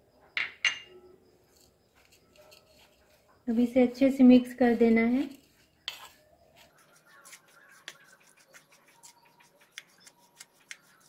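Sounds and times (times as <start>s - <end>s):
spoon scraping dry mix in bowl: 1.6s - 3.2s, 4.6s - 11.0s.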